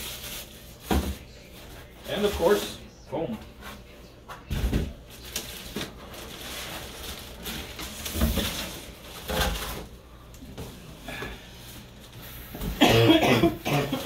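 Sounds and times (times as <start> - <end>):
plastic wrapping rustling: 5.1 - 10.0.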